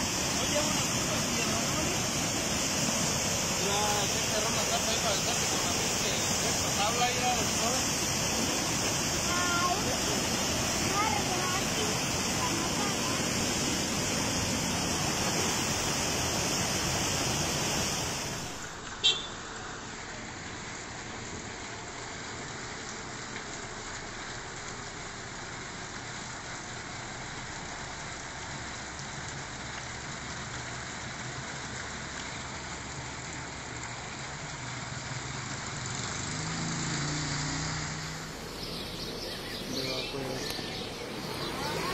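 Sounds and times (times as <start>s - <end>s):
floodwater rushing: 0.0s - 41.9s.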